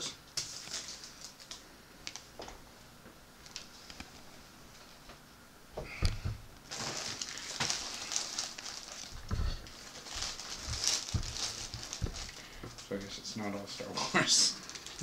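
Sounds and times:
plastic bag crinkling: 0.4 - 2.2, 6.6 - 13.3, 14.0 - 15.0.

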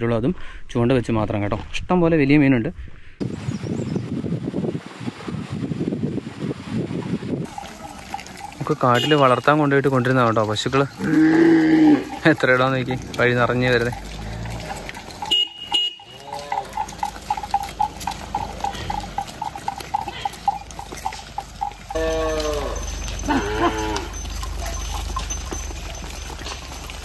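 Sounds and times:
cattle walking: 7.4 - 27.0
cow bell clinking: 7.5 - 27.0
cattle mooing: 11.0 - 27.0.

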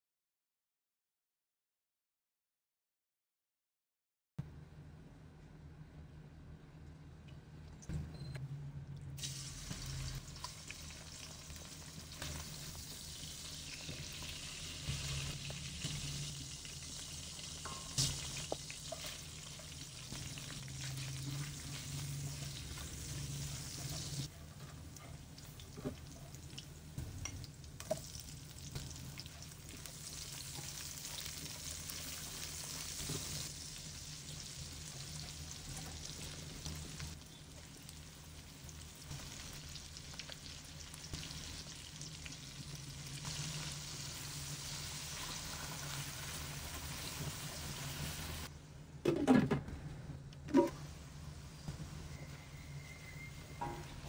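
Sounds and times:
food sizzling in hot oil: 9.2 - 24.3, 25.4 - 48.5.

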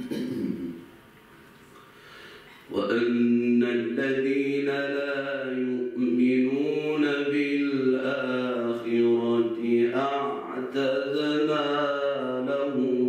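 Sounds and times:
man chanting: 2.7 - 13.0.

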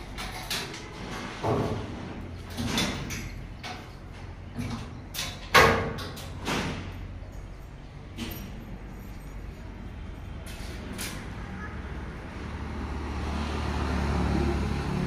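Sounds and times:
panels knocking and banging: 0.0 - 7.0.

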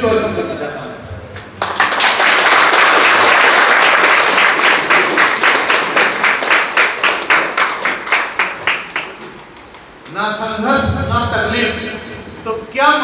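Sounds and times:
audience clapping: 1.4 - 10.1.

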